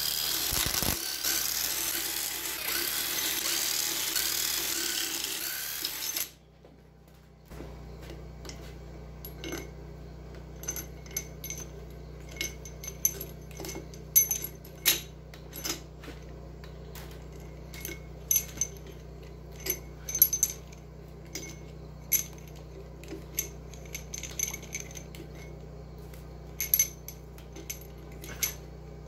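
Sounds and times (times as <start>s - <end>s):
steady low hum: 5.9s - 29.0s
metal bolts clinking: 8.4s - 9.8s, 10.4s - 28.7s.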